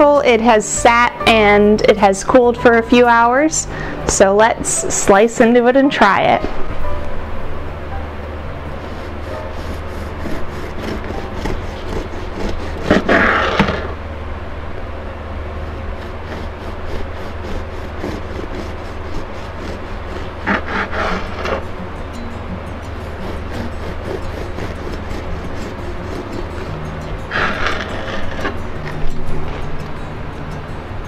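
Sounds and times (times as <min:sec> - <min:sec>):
steady low hum: 0:00.0 - 0:31.0
bread knife sawing through loaf: 0:08.8 - 0:14.0, 0:15.6 - 0:21.8, 0:22.9 - 0:29.1.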